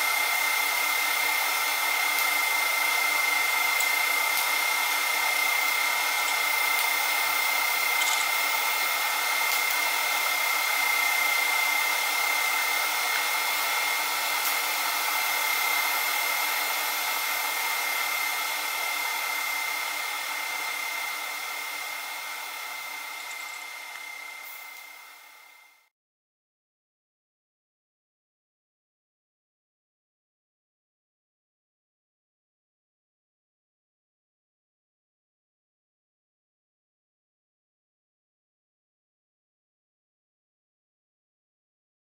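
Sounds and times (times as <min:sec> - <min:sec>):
welding hiss with high whine: 0:00.0 - 0:25.9.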